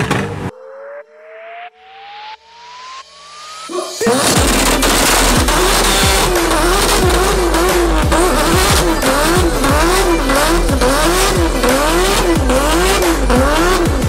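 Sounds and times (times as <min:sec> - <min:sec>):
car engine revving: 0:02.8 - 0:14.0
tyres squealing: 0:03.7 - 0:13.9.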